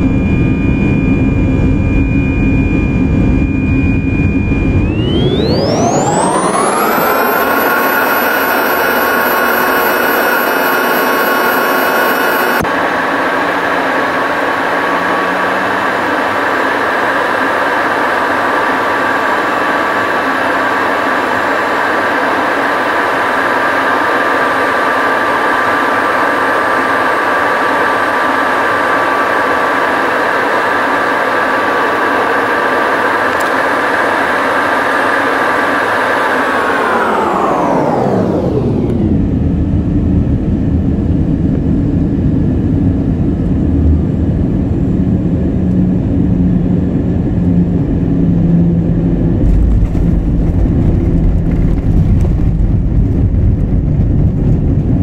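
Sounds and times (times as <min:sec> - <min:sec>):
cabin drone and rushing: 0:00.0 - 0:55.0
constant high whine: 0:00.0 - 0:55.0.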